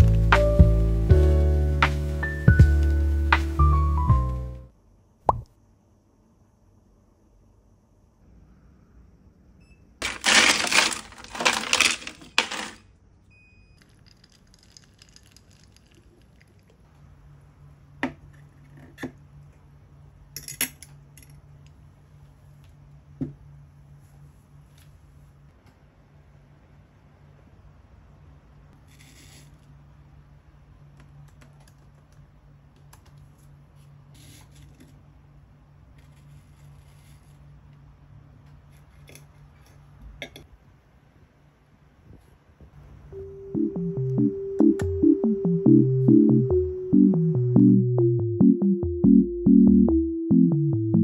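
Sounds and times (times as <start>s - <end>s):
ice cubes clattering: 10.0s - 12.8s, 13.8s - 16.8s
coffee poured over ice: 13.8s - 16.8s.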